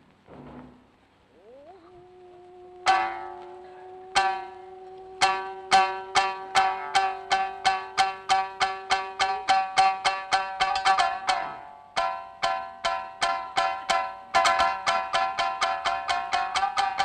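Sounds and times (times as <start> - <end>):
person singing long note: 2.1 - 8.5
shamisen plucked notes: 2.8 - 17.0.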